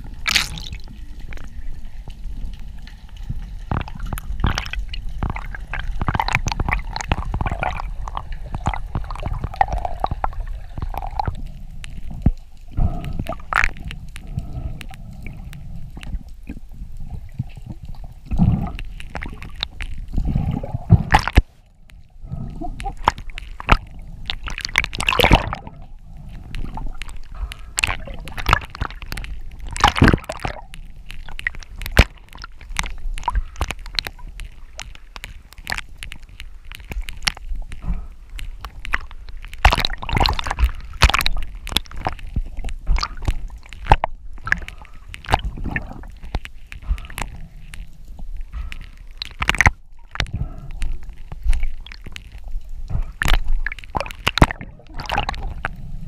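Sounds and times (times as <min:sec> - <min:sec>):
underwater clicks and knocks: 0:00.0 - 0:55.9
underwater rumble of moving water: 0:00.0 - 0:56.0
water gurgling: 0:00.0 - 0:56.0.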